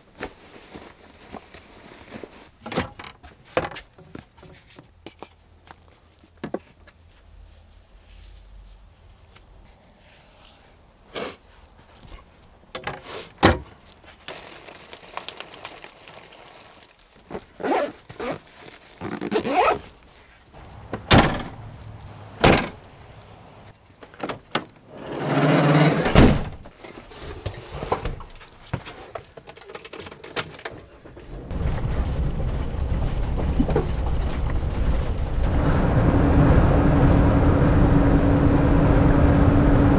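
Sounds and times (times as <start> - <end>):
bags rustling: 13.7 - 20.9.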